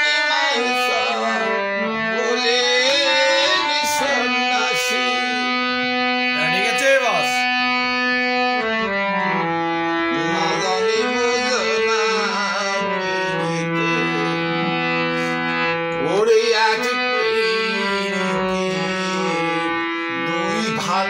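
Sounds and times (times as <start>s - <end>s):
man singing: 0.0s - 6.8s, 10.0s - 21.0s
harmonium melody: 0.0s - 21.0s.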